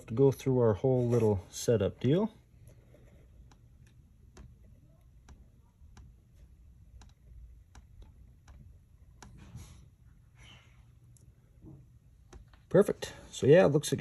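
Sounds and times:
fingertip tapping touchscreen: 3.0 - 9.5.

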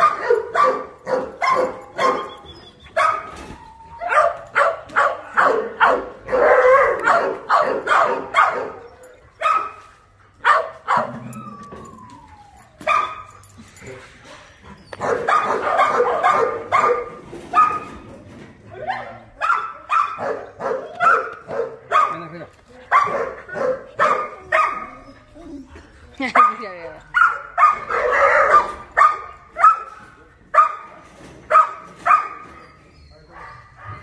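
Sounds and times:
dogs barking: 0.0 - 3.4, 4.0 - 11.3, 12.8 - 13.4, 14.9 - 18.0, 18.8 - 25.1, 26.2 - 34.0
dogs yelping: 0.0 - 18.0, 18.8 - 25.5, 26.2 - 29.9, 31.5 - 34.0
dog whining: 1.9 - 4.5, 10.9 - 15.5, 24.0 - 26.0, 32.3 - 34.0.

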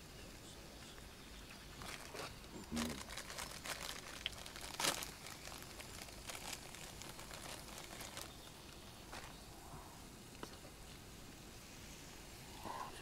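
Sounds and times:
plastic packet crinkling: 1.8 - 9.3.

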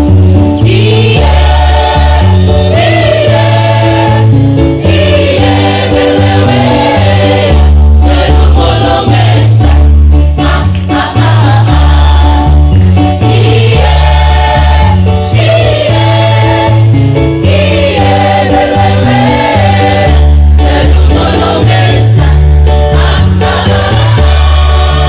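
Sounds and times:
backing music with deep bass: 0.0 - 25.0
choir singing amplified: 0.6 - 25.0.

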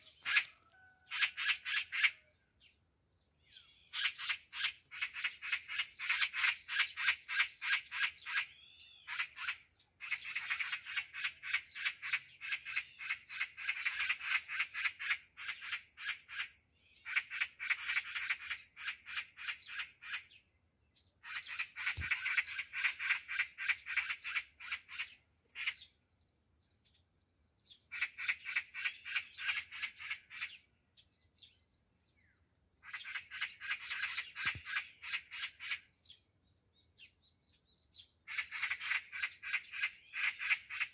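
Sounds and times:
magpies rattling chatter: 0.1 - 2.2, 21.2 - 25.9, 27.9 - 30.6, 32.8 - 35.9, 38.3 - 40.9.

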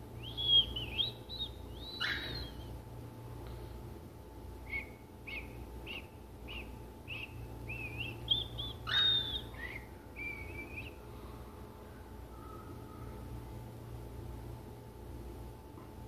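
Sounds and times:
parrots chirping and whistling: 0.2 - 2.8, 4.6 - 11.0.

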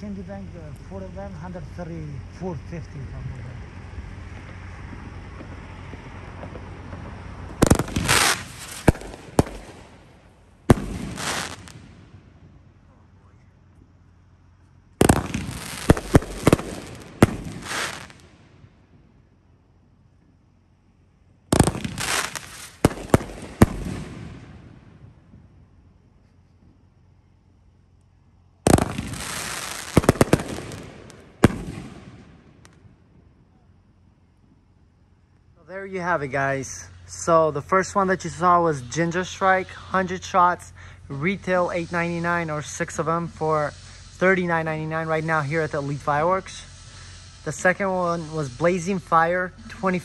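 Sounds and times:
fireworks crackling hiss: 0.0 - 50.0
fireworks bangs: 4.2 - 12.8, 15.0 - 19.2, 21.5 - 25.7, 28.6 - 33.4.

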